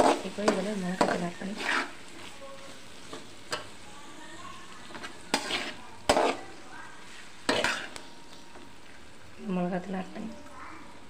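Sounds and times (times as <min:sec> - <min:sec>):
metal spatula scraping pan: 0:00.0 - 0:03.7, 0:04.8 - 0:08.1
frying sizzle: 0:00.0 - 0:11.0.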